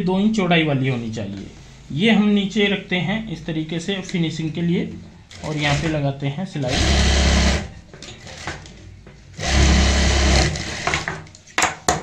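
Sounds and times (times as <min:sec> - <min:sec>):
sewing machine stitching: 0:05.3 - 0:06.0, 0:06.6 - 0:08.7, 0:09.4 - 0:11.1.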